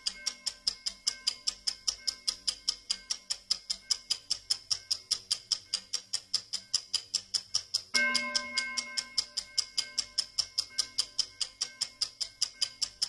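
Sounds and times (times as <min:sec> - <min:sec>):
faint ringing tone: 0:00.0 - 0:05.0, 0:07.9 - 0:13.0
clock ticking quickly: 0:00.0 - 0:13.0.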